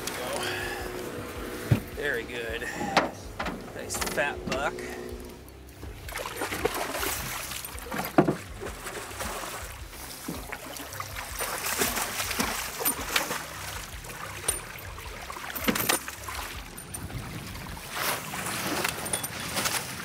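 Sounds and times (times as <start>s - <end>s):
fish splashing in water: 4.8s - 20.0s.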